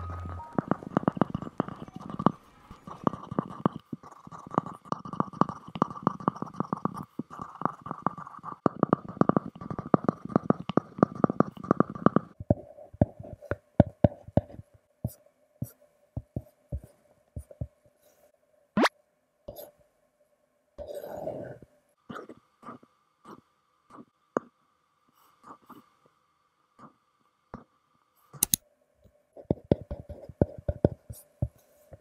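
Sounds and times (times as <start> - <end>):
stylus tapping and scratching glass: 29.4 - 32.0.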